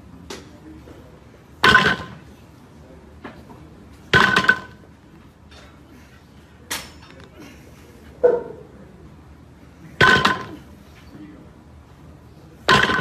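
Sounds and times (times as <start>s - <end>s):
barbell clanking on floor: 1.6s - 2.2s, 4.1s - 4.8s, 10.0s - 10.6s, 12.7s - 13.0s.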